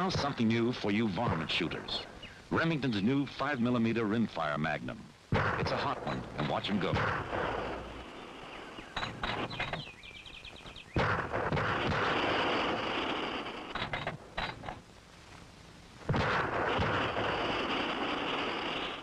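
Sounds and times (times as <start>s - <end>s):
rifle shots: 5.3s - 9.7s, 11.0s - 14.8s, 16.1s - 19.0s.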